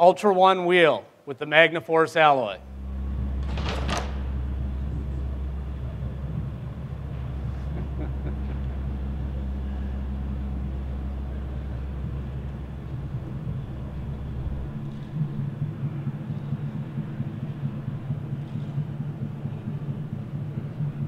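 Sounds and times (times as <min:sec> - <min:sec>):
low hum: 0:02.4 - 0:21.0
deep rumble: 0:02.6 - 0:21.0.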